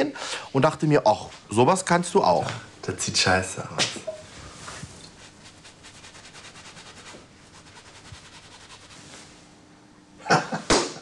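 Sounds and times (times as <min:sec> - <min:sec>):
loud sharp slaps: 0:10.7 - 0:11.0.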